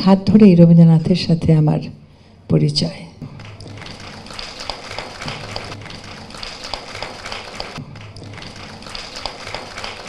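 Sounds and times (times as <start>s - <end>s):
tapping clicking percussion: 3.3s - 10.0s.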